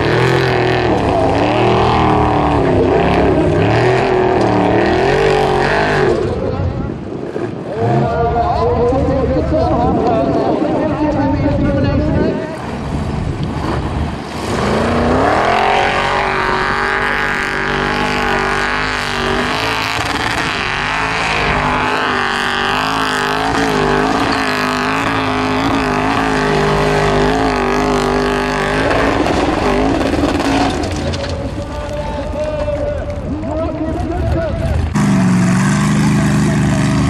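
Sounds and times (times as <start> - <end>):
buggy engine revving hard: 0.0 - 6.4, 12.7 - 31.2, 34.8 - 37.0.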